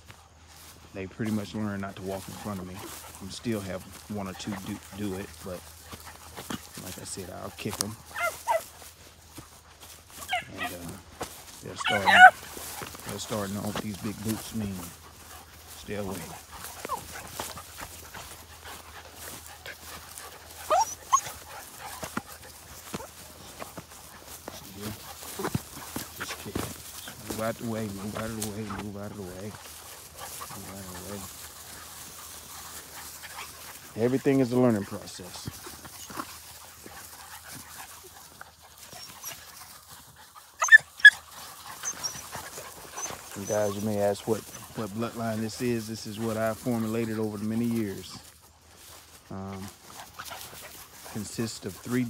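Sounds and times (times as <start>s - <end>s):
puppies scuffling in grass: 0.0s - 52.0s
high puppy cries: 8.0s - 8.8s, 10.2s - 10.9s, 11.7s - 12.6s, 16.3s - 18.2s, 19.6s - 24.3s, 38.6s - 39.5s, 40.4s - 44.7s.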